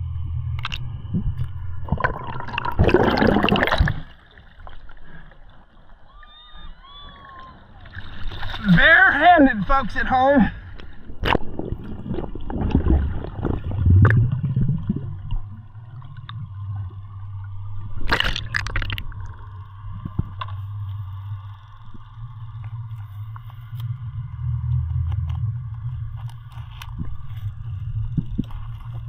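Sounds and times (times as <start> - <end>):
muffled underwater rumble: 0.0 - 29.0
water gurgling: 0.6 - 6.1, 11.2 - 29.0.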